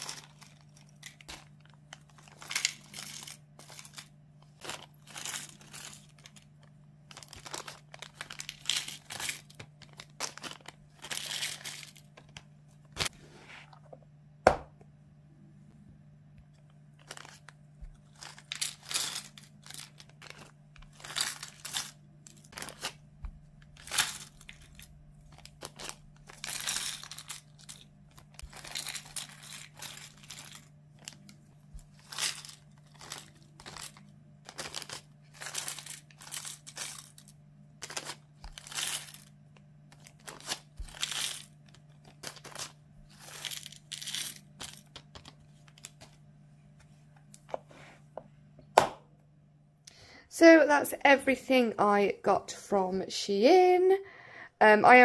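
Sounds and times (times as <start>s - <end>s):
plastic pieces clattering: 0.0s - 13.0s, 17.0s - 23.0s, 23.6s - 46.2s.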